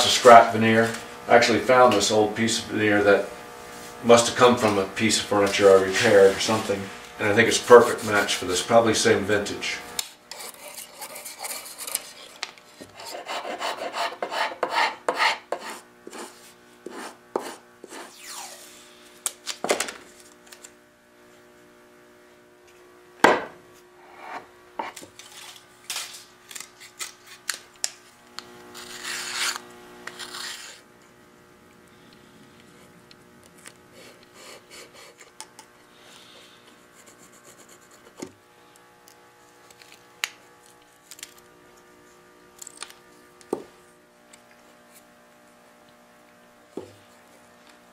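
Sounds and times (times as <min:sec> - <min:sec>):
hand file rasping on wood: 0:10.3 - 0:18.1.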